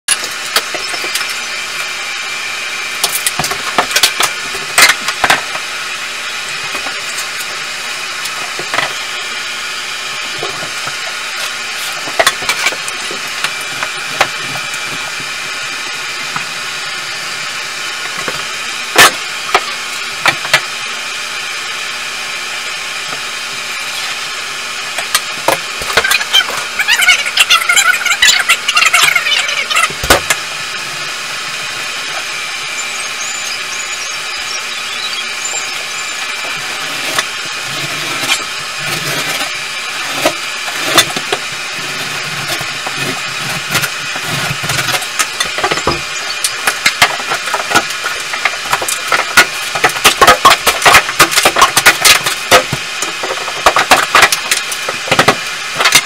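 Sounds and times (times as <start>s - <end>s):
steady mechanical hum: 0.1s - 56.0s
faint high whine: 29.4s - 38.2s
knocks and clanks of hand tools: 42.4s - 56.0s.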